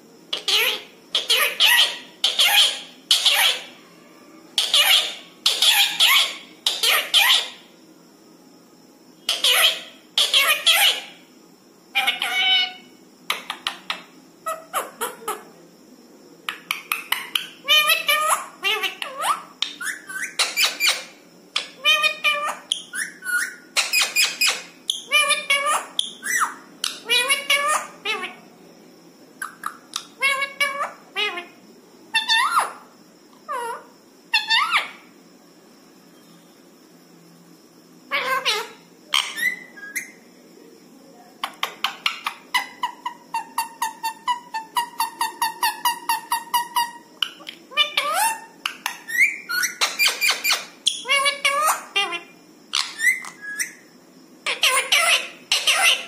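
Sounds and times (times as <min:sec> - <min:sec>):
parakeet calling and chattering: 0:00.3 - 0:03.8, 0:04.5 - 0:07.7, 0:09.2 - 0:11.3, 0:11.9 - 0:15.5, 0:16.5 - 0:28.5, 0:29.4 - 0:35.1, 0:38.1 - 0:40.2, 0:41.4 - 0:56.0.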